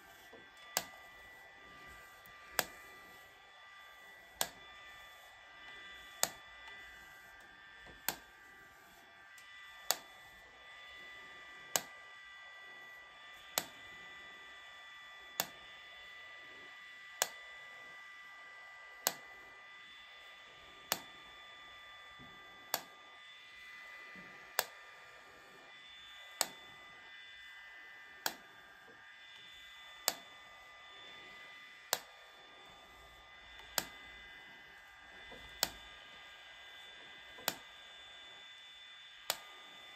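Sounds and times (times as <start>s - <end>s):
hair-removal device clicking: 0.0s - 12.2s, 13.0s - 15.8s, 17.1s - 17.5s, 19.0s - 19.4s, 20.8s - 21.3s, 22.6s - 23.2s, 24.1s - 24.8s, 26.2s - 27.1s, 28.2s - 30.4s, 31.1s - 38.4s, 39.2s - 39.9s.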